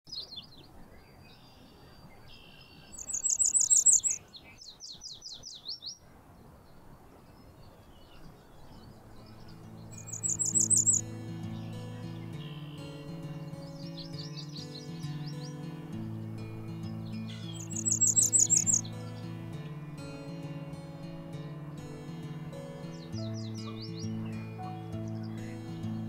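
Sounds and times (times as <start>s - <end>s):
bird singing high thin notes: 1.4s - 4.3s, 9.2s - 26.0s
soft background music: 3.1s - 4.2s, 8.9s - 26.0s.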